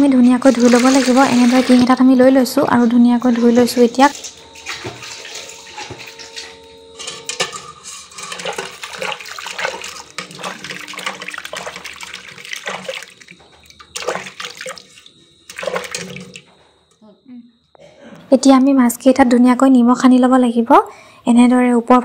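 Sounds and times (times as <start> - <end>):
water splashing in a bucket: 0.0 - 6.8, 8.0 - 16.7.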